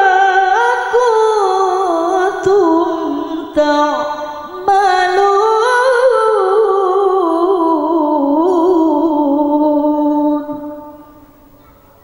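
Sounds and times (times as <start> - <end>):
woman reciting melodically: 0.0 - 12.0.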